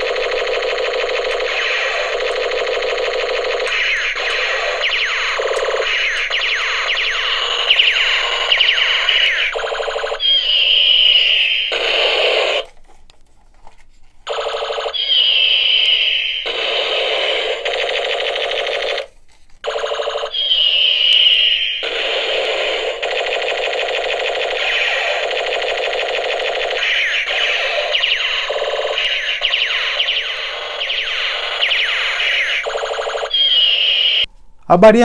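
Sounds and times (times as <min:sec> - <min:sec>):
toy gun zaps and laser whine: 0:00.0 - 0:12.7, 0:14.3 - 0:19.1, 0:19.7 - 0:34.3.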